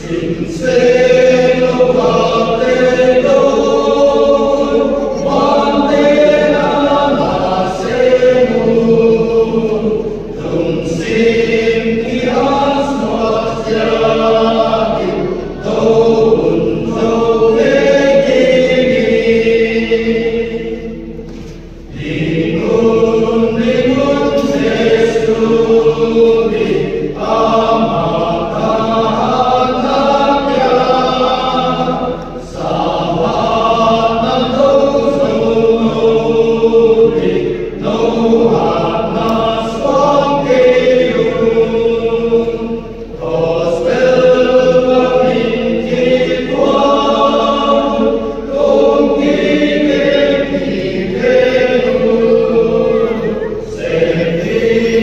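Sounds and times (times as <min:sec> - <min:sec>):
men's choir singing a hymn: 0:00.0 - 0:55.0.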